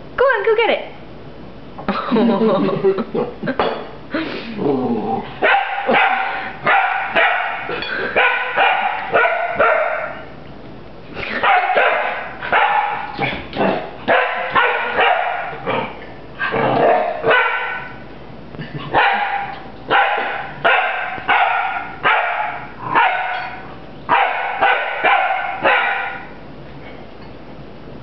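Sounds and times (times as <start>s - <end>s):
puppy barking: 5.4s - 10.3s, 11.4s - 13.2s, 14.1s - 15.6s, 16.8s - 18.0s, 18.9s - 26.4s.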